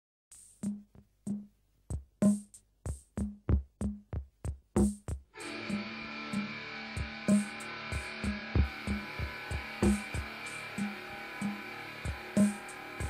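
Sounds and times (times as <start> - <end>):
drum machine beat: 0.3 - 13.0
dense held chord: 5.4 - 13.0.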